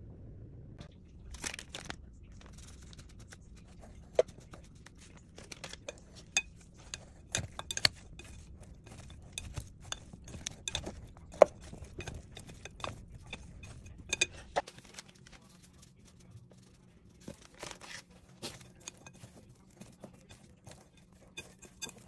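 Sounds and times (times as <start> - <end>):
chicken pieces knocking against bowl: 3.0 - 14.8.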